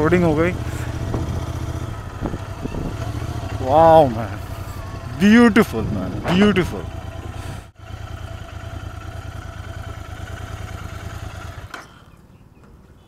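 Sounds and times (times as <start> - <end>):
motorcycle engine idling: 0.0 - 12.0.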